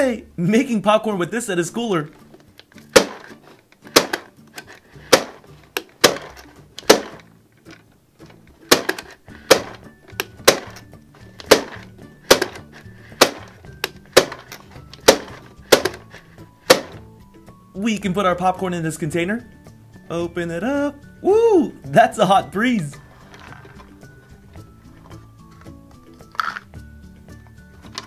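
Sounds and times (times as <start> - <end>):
light background music: 0.0 - 28.0
toy popcorn maker popping: 2.7 - 7.3, 8.7 - 17.0, 26.2 - 26.7.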